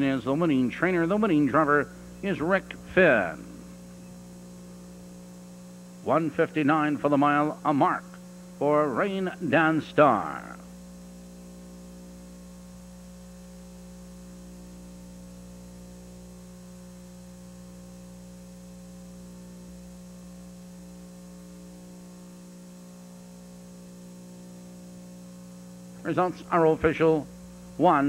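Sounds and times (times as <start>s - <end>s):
electrical mains hum: 0.0s - 28.0s
faint hiss: 0.0s - 28.0s.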